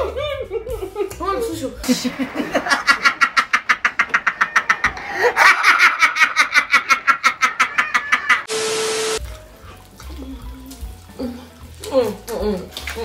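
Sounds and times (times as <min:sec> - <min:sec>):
man cackling laughter: 0:02.1 - 0:08.5
tv static hiss: 0:08.5 - 0:09.2.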